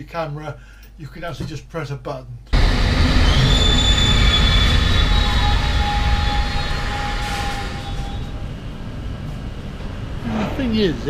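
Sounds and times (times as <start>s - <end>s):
high-pitched train whines: 2.6s - 11.0s
train rumble: 2.6s - 11.0s.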